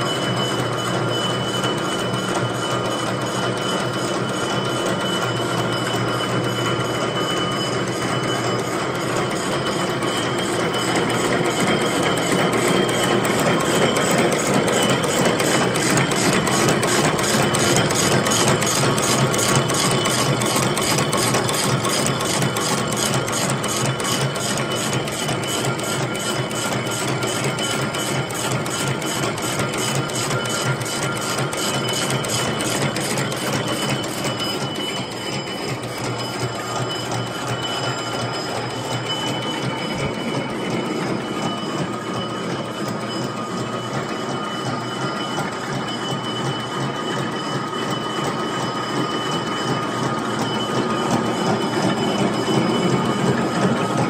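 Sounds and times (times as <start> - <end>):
machine clattering: 0.0 - 54.0
machine whining tones: 0.0 - 54.0.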